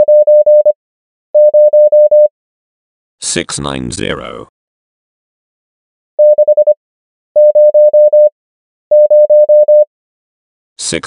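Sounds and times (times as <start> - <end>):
morse code tone: 0.0 - 0.8, 1.4 - 2.3, 6.2 - 6.8, 7.4 - 8.3, 8.9 - 9.9.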